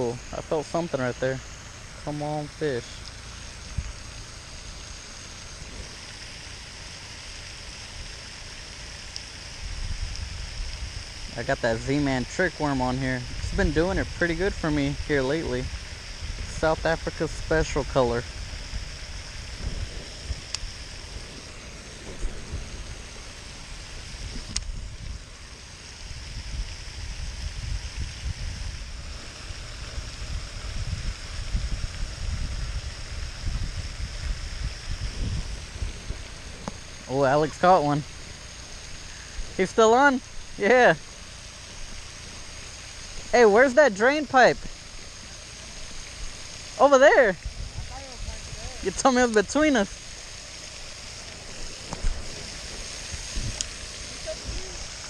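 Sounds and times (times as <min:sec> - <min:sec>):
fountain spray hissing: 0:00.0 - 0:55.0
wind buffeting microphone: 0:13.1 - 0:25.4, 0:26.0 - 0:38.3, 0:47.2 - 0:49.0, 0:50.8 - 0:55.0
low rumble: 0:15.0 - 0:39.6.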